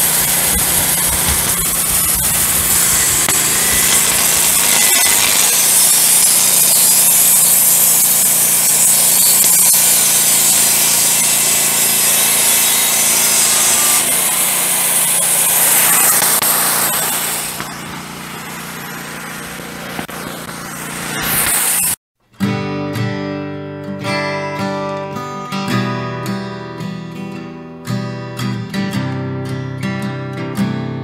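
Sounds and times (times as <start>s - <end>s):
band saw blade cutting log: 0.0s - 22.0s
sawmill engine running: 0.0s - 22.0s.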